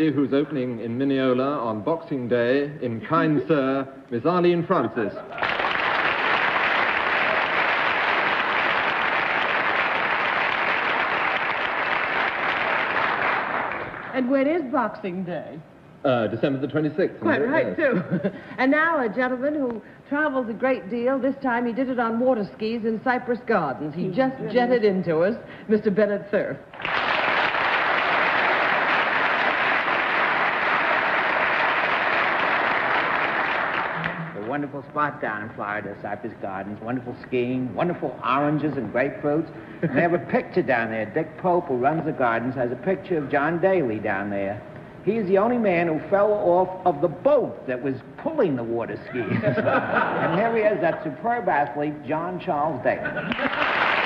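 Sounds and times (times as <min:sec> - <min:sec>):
audience applauding: 0:05.3 - 0:14.2, 0:26.7 - 0:34.5, 0:53.2 - 0:54.0.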